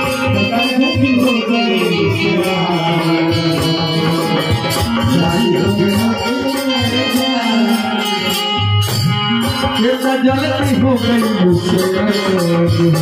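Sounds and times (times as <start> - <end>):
melody line: 0.0 - 11.6
tabla drumming: 0.0 - 13.0.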